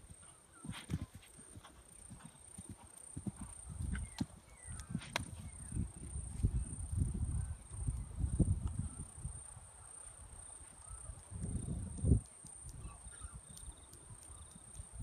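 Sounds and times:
horse hoofbeats on grass: 0.0s - 5.5s.

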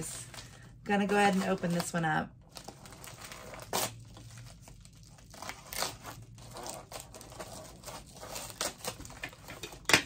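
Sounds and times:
wrapping crinkling: 0.0s - 9.9s
scissors snipping wrapping: 2.5s - 9.9s.

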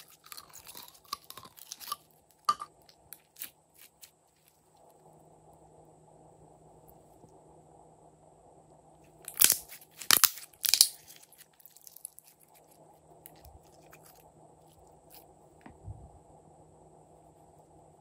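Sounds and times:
slime squishing and popping: 9.3s - 12.4s.

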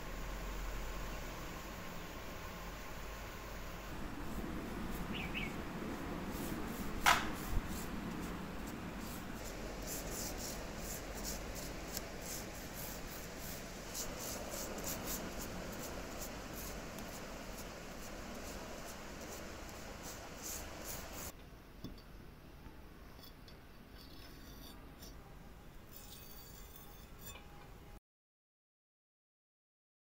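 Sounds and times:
paintbrush swishing: 3.9s - 21.3s
sharp tap: 7.0s - 7.4s.

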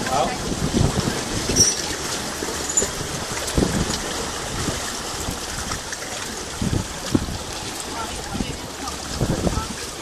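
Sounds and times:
seawater sloshing over rocks: 0.0s - 10.0s.

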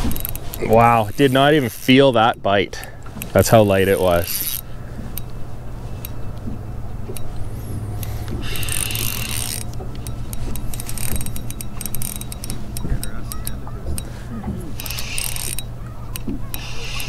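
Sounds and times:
fishing reel clicking: 0.0s - 2.1s, 3.5s - 5.4s, 7.1s - 14.2s, 14.8s - 17.0s
steady low hum: 0.0s - 17.0s.

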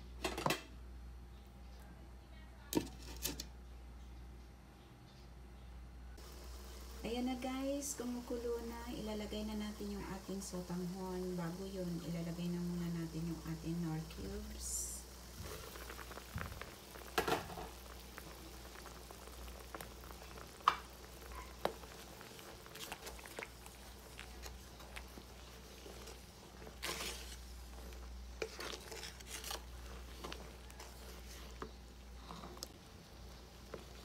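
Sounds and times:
broth bubbling in a pot: 6.2s - 34.0s
wooden spatula stirring: 15.3s - 34.0s.

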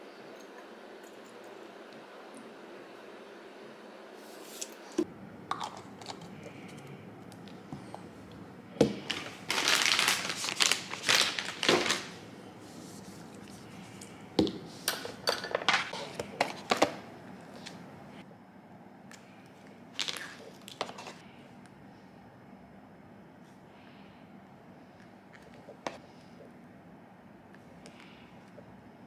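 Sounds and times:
packaging crinkling and rustling: 8.9s - 12.2s, 20.0s - 21.2s.

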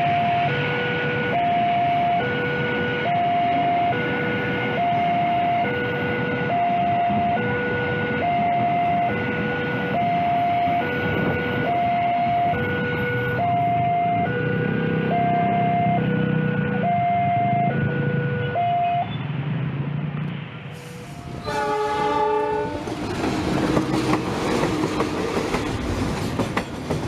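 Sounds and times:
level crossing two-tone alarm: 0.0s - 19.1s
train wheels rumbling on rails: 19.0s - 27.0s.

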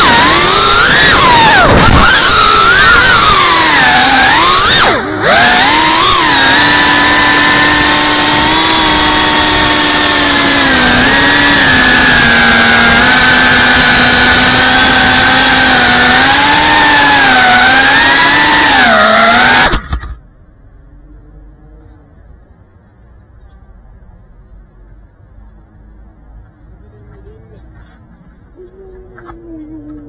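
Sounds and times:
drone motors whining: 0.0s - 20.2s.

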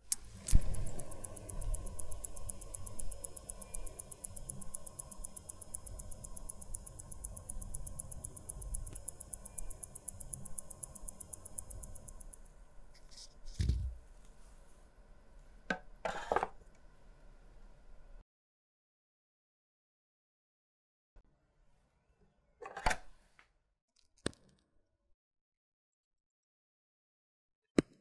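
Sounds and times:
watch movement ticking: 0.0s - 12.5s.

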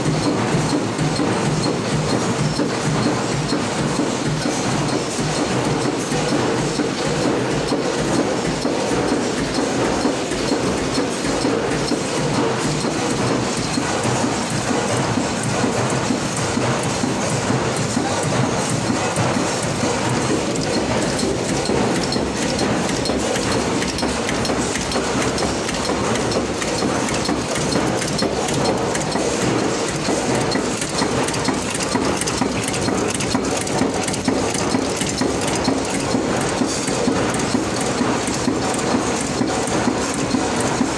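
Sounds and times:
nut making machine clatter: 0.0s - 40.9s.

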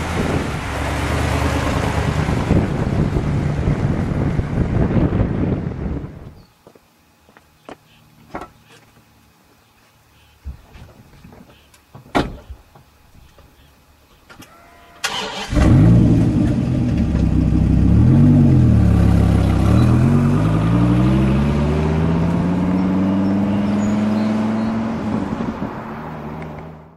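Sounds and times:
car accelerating away: 0.0s - 4.5s, 15.0s - 26.9s
car engine starting and revving: 0.0s - 5.8s, 15.0s - 26.9s.

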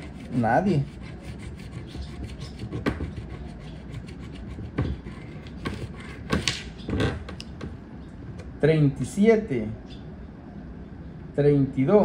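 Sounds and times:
coin scraping scratch card: 0.0s - 6.6s.

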